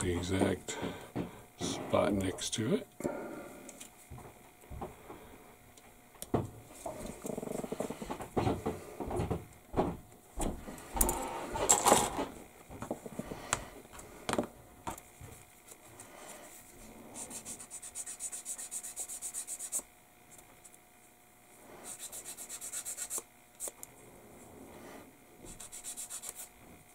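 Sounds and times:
plastic part filed on metal file: 17.2s - 19.8s, 21.8s - 23.2s, 25.4s - 26.5s.

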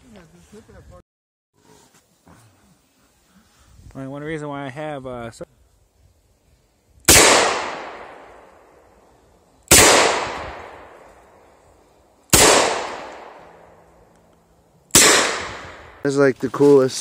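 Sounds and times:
handgun shots echoing: 7.1s - 8.4s, 9.7s - 11.0s, 12.3s - 13.6s, 14.9s - 15.8s.

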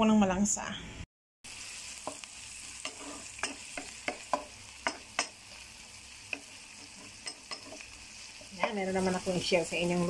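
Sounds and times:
onions sizzling in a pan: 1.4s - 10.0s
spatula scraping a pan: 1.6s - 9.4s.

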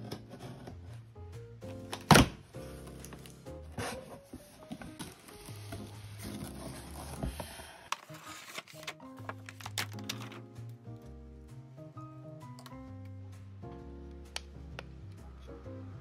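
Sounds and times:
background music: 0.0s - 16.0s
cardboard box being handled: 3.7s - 9.8s.

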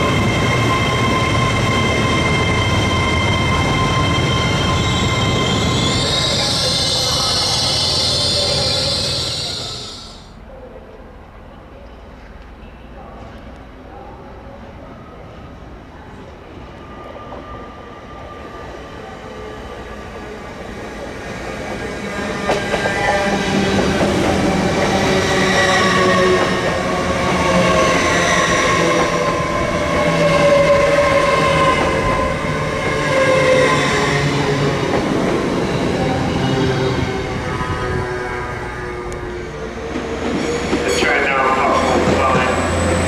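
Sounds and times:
high ringing tones from wheels: 0.0s - 10.1s
train rumbling: 19.6s - 43.0s.

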